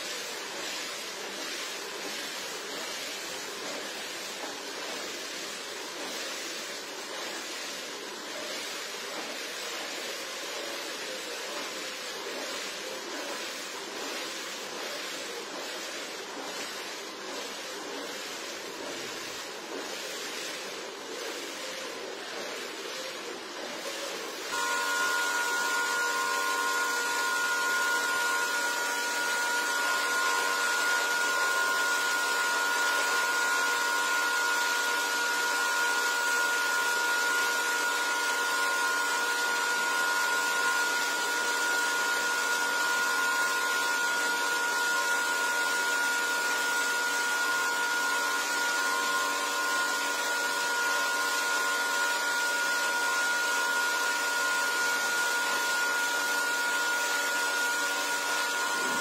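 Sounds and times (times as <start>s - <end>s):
water jet hissing: 0.0s - 59.0s
pressure washer motor whine: 23.8s - 59.0s.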